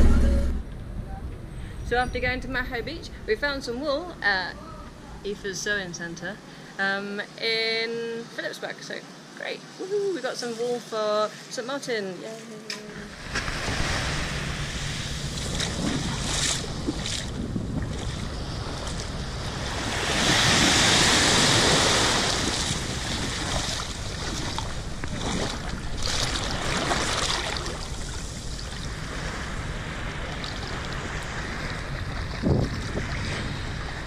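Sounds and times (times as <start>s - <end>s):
sea water lapping: 12.9s - 34.0s
rush of water: 13.0s - 34.0s
wind noise on microphone: 13.2s - 34.0s.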